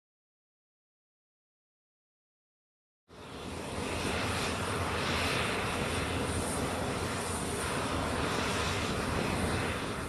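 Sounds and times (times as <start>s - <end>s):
jet engines whining and rumbling: 3.1s - 10.0s.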